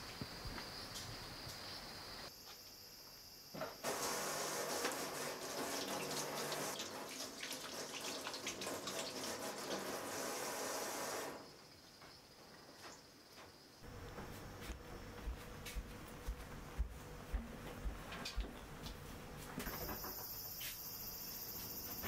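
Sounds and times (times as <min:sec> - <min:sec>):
tap water running into sink: 0:03.8 - 0:11.3.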